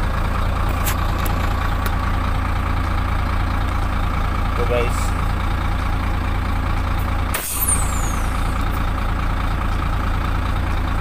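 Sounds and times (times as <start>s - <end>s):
diesel truck engine idling: 0.0s - 11.0s
air hiss with falling whistle: 7.4s - 8.4s.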